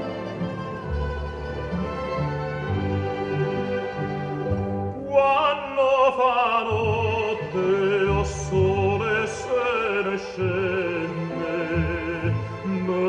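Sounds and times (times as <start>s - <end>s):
orchestral accompaniment: 0.0s - 13.0s
operatic singing with vibrato: 4.9s - 13.0s.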